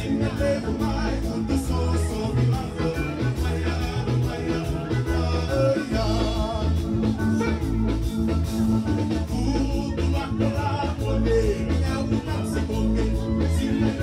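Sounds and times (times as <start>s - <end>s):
bass line: 0.0s - 14.0s
person singing: 0.0s - 14.0s
steady drum beat: 0.0s - 14.0s.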